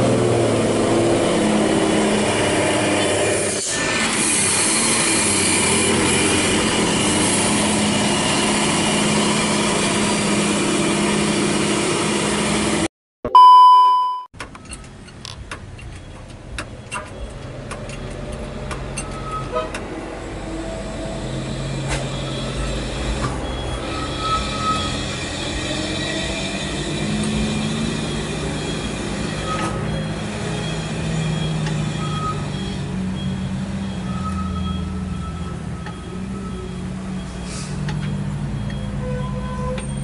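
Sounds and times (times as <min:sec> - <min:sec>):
truck diesel engine passing: 0:00.0 - 0:12.9, 0:19.8 - 0:39.0
loud electronic beep: 0:13.3 - 0:14.3
scattered clicks and knocks: 0:14.4 - 0:19.9
engine running in background: 0:26.3 - 0:40.0.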